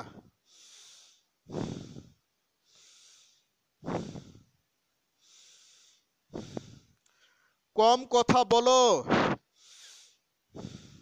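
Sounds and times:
person breathing: 0.0s - 4.6s, 5.2s - 7.7s, 9.5s - 11.0s.

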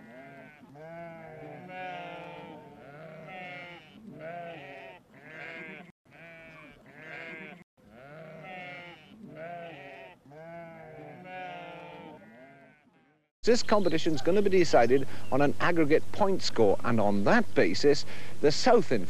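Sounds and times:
sheep bleating: 0.0s - 13.3s.

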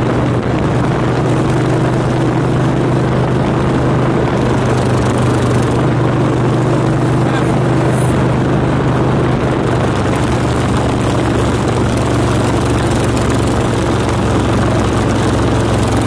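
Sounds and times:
motorcycle engine running: 0.0s - 16.0s
wind rushing over microphone: 0.0s - 16.0s.

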